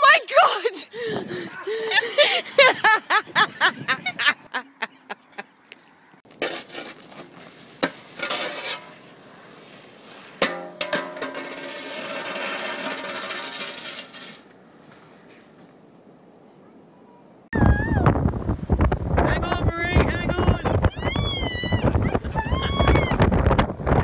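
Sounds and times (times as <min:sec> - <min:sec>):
metal shovel scraping ice: 0:06.3 - 0:09.1, 0:09.7 - 0:14.5.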